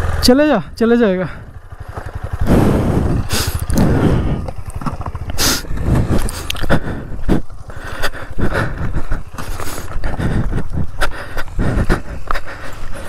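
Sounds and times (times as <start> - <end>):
motorcycle engine running: 0.0 - 13.0
footsteps on dry grass and stones: 2.6 - 13.0.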